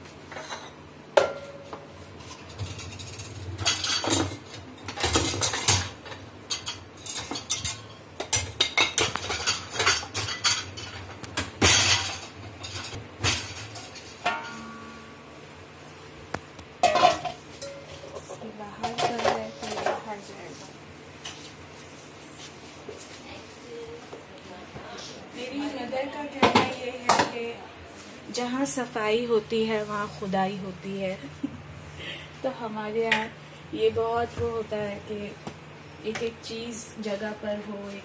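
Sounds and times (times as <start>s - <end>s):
metal pots and utensils clattering: 0.3s - 15.0s, 16.8s - 20.3s.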